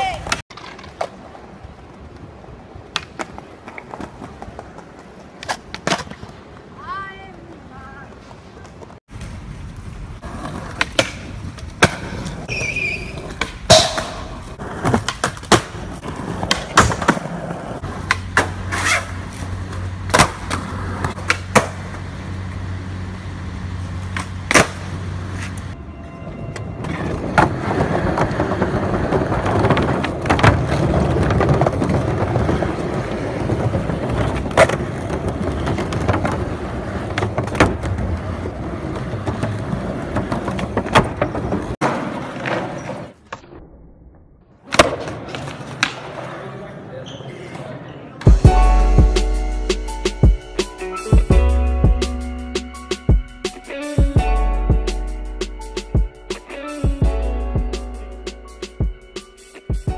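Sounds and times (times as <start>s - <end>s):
skateboard wheels rumbling: 0.0s - 43.3s
skateboard clacks: 10.2s - 22.1s, 26.9s - 43.4s.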